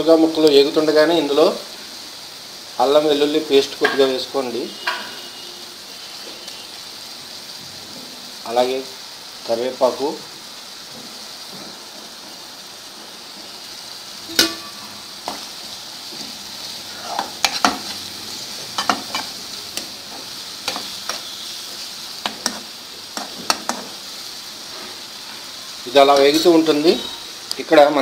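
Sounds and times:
vegetables sizzling in hot oil: 0:00.0 - 0:28.0
metal spoon scraping a pan: 0:04.8 - 0:05.4, 0:17.1 - 0:18.1, 0:18.7 - 0:24.1.

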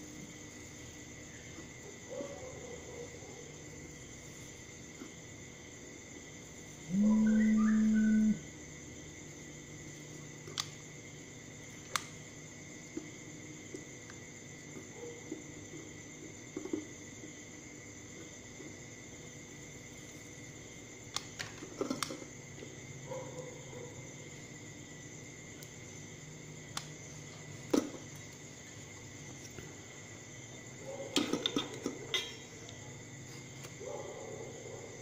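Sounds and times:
faint high-pitched drone: 0:06.9 - 0:08.5.

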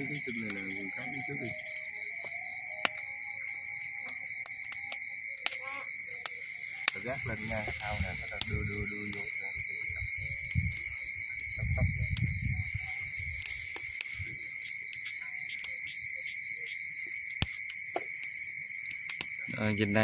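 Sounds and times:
low murmuring: 0:00.0 - 0:01.7, 0:06.8 - 0:13.5
crickets trilling: 0:00.0 - 0:20.0
sharp clicks: 0:04.0 - 0:07.0.

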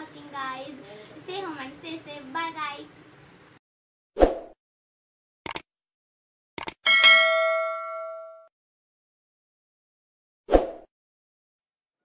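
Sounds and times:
notification bell ding: 0:06.9 - 0:08.5.

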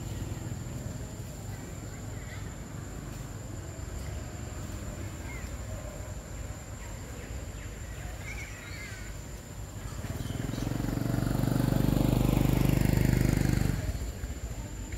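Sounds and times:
faint bird chirps: 0:04.0 - 0:11.0.

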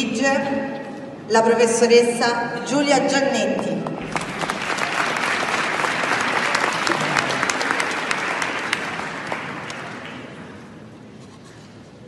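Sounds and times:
audience applauding: 0:04.0 - 0:10.7.

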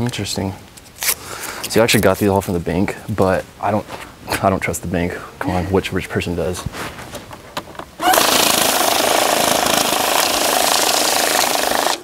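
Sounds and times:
banknote counting machine whirring: 0:08.0 - 0:12.0.

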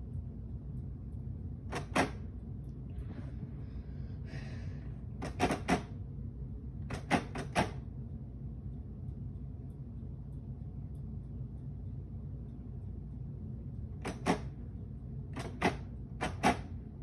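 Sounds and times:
sharp clicks: 0:00.1 - 0:02.8, 0:06.8 - 0:13.1, 0:13.8 - 0:16.9.

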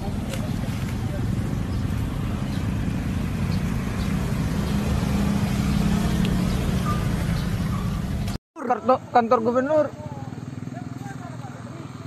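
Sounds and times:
steady engine hum: 0:00.0 - 0:08.4
motorbike engines droning: 0:00.0 - 0:12.0.

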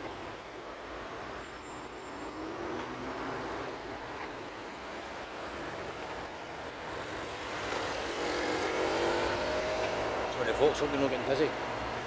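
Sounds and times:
road traffic hum: 0:00.0 - 0:12.0
vehicle engine: 0:07.5 - 0:11.1.

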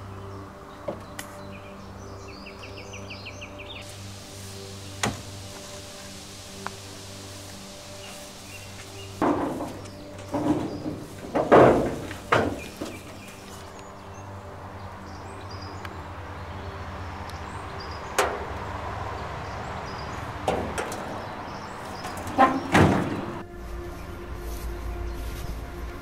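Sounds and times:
metal clunks and scrapes: 0:09.2 - 0:13.6, 0:20.4 - 0:21.3, 0:21.9 - 0:23.4.

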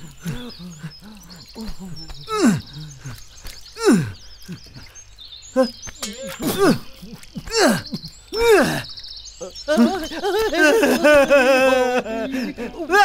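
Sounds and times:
faint high chirps: 0:00.0 - 0:13.0
man groaning: 0:01.6 - 0:02.9, 0:06.4 - 0:08.8.

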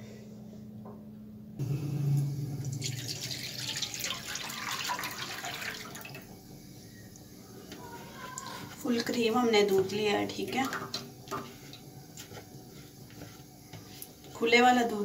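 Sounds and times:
low hum: 0:00.0 - 0:13.9
milk pouring into a pan: 0:02.8 - 0:06.2.

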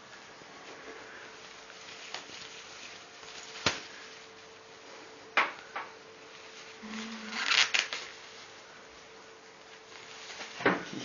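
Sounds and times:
faint steady hum: 0:00.0 - 0:11.0
plastic bag crackling: 0:01.3 - 0:04.7, 0:06.2 - 0:08.6.

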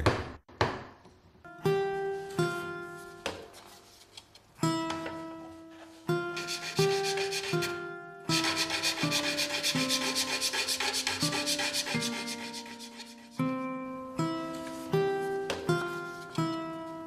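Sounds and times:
plucked string instrument: 0:01.5 - 0:03.6, 0:04.6 - 0:07.0, 0:13.3 - 0:17.0
fast rhythmic scraping: 0:08.4 - 0:13.4.

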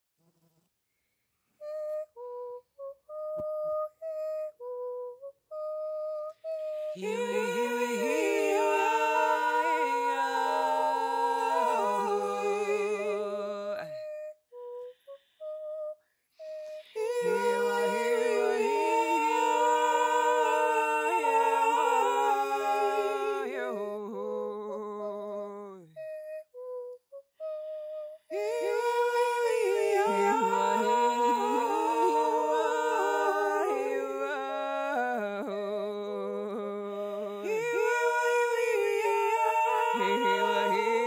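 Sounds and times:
a cappella voices singing chords: 0:06.3 - 0:15.0, 0:16.4 - 0:26.0, 0:28.2 - 0:41.0.

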